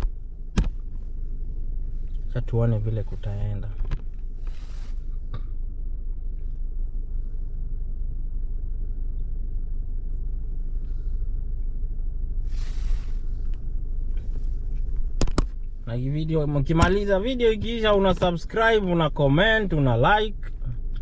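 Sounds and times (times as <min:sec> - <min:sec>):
car engine idling: 0:00.0 - 0:21.0
short hiss: 0:12.5 - 0:13.3.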